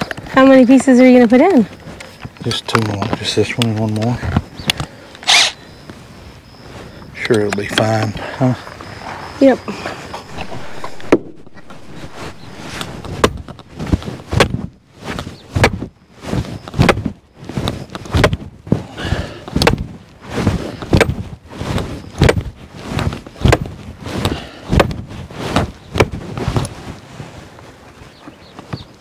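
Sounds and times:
hammer driving stake into ground: 10.3 - 15.9, 19.6 - 19.8, 20.9 - 21.3, 22.2 - 22.5.

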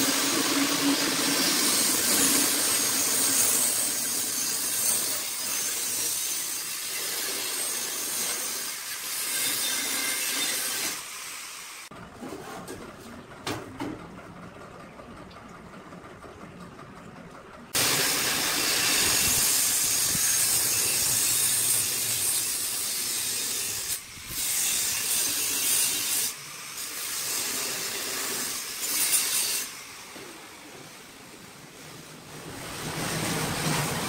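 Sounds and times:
angle grinder cutting steel tube: 0.0 - 11.9, 17.8 - 30.5.

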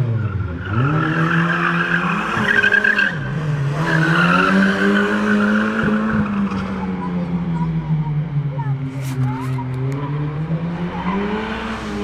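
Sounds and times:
rally car engine revving high: 0.0 - 7.5, 9.8 - 12.0.

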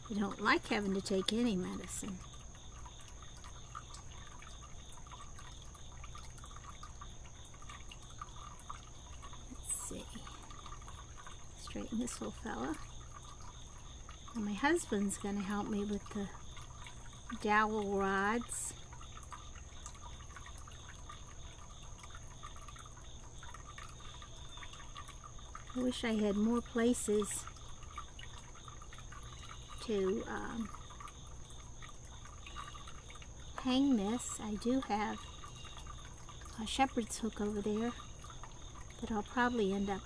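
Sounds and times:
high-pitched insect drone: 0.0 - 40.0
small chirps or ticks: 0.0 - 40.0.

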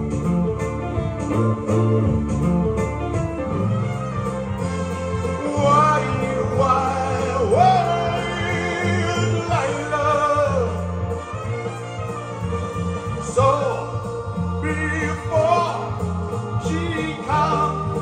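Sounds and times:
backing track with bass line: 0.0 - 18.0
man singing into microphone: 5.3 - 11.2, 13.2 - 18.0.

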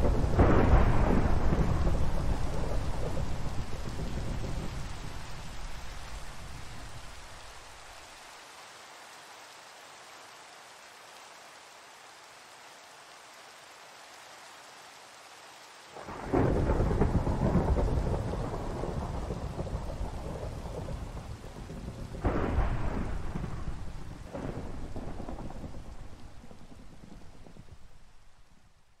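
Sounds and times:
thunder cracks and rumbling: 0.0 - 6.7, 16.0 - 27.9
steady rain: 0.0 - 29.0.

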